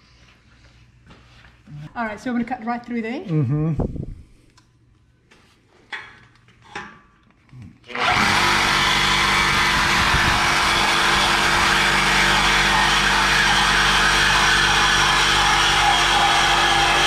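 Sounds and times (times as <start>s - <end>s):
reciprocating saw cutting metal pipe: 7.9s - 17.0s.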